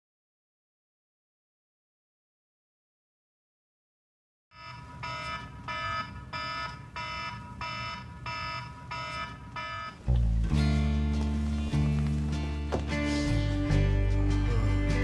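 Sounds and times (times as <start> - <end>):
smartphone alarm chime: 4.6 - 10.0.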